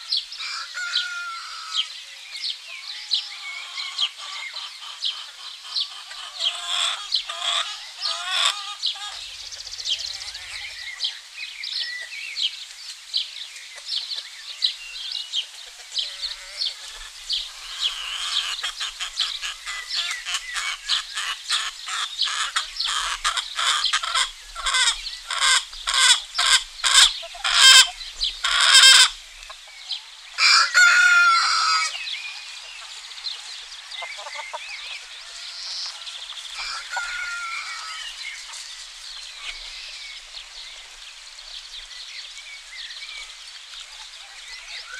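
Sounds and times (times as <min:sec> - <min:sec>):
songbirds chirping: 0:00.0 - 0:44.9
rooster crowing: 0:00.4 - 0:01.8, 0:30.4 - 0:32.0, 0:35.3 - 0:38.2
hens clucking: 0:03.4 - 0:11.1, 0:15.4 - 0:39.8.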